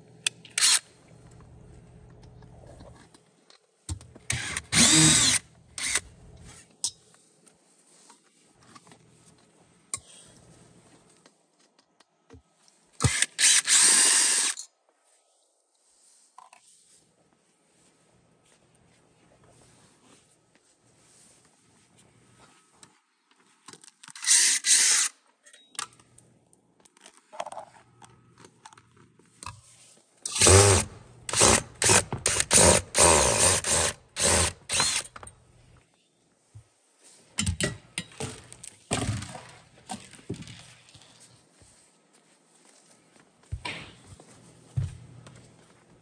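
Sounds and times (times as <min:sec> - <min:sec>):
cordless drill driving screws: 0:00.6 - 0:00.8, 0:04.3 - 0:06.0, 0:13.0 - 0:14.6, 0:24.2 - 0:25.1, 0:30.3 - 0:35.2.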